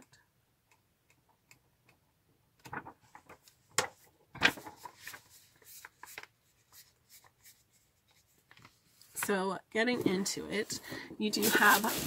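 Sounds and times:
paper packaging rustling: 0:04.4 - 0:09.3, 0:10.1 - 0:12.0.

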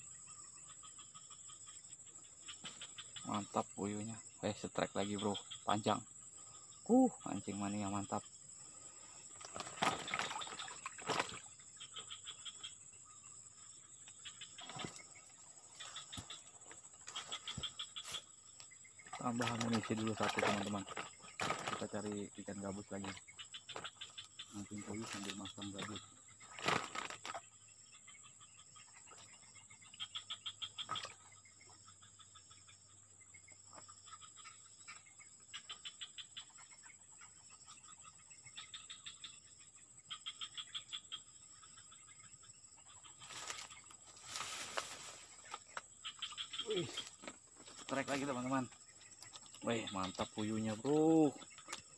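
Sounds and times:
rapid chattering calls: 0:00.9 - 0:32.7, 0:42.9 - 0:51.9
high-pitched insect drone: 0:43.3 - 0:51.9.

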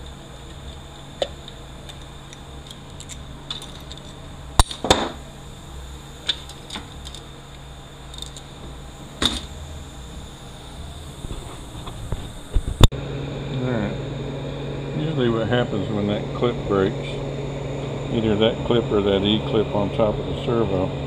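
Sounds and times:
steady low hum: 0:00.0 - 0:21.0
metal tools clinking: 0:02.7 - 0:04.8.

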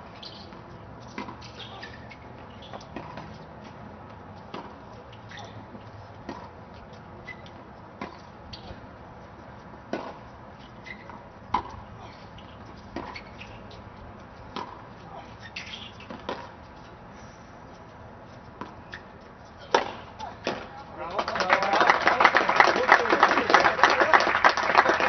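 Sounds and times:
faint outdoor background noise: 0:00.0 - 0:25.0
tennis balls bouncing on hard court: 0:00.2 - 0:08.9, 0:09.6 - 0:16.6, 0:18.6 - 0:21.3.

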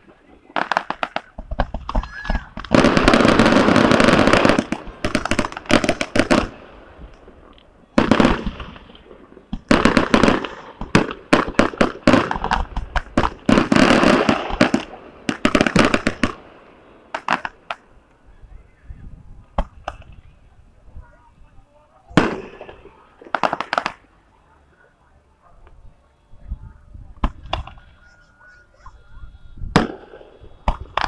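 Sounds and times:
fireworks bangs and crackles: 0:00.0 - 0:18.0, 0:19.0 - 0:21.3, 0:22.1 - 0:24.1, 0:27.0 - 0:28.0, 0:29.6 - 0:31.0.

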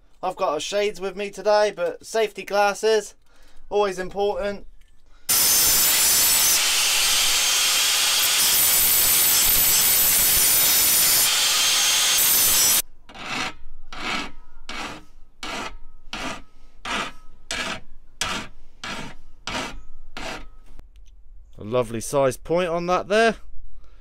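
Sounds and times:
angle grinder grinding metal: 0:05.3 - 0:13.4
hand file rasping metal: 0:05.3 - 0:20.5.

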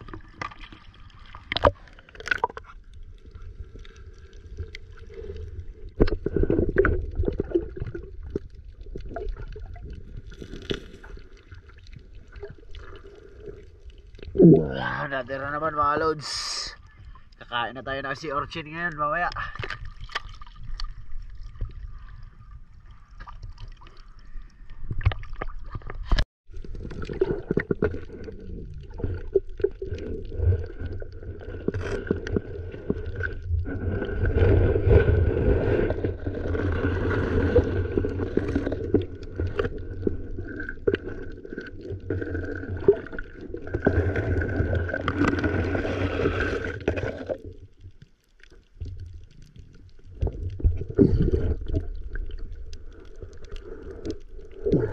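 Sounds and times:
underwater rumbling water: 0:00.0 - 0:54.9.

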